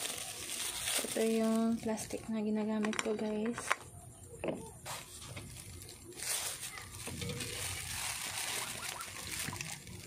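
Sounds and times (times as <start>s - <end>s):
plastic bag crinkling: 0.0s - 3.8s, 4.8s - 10.0s.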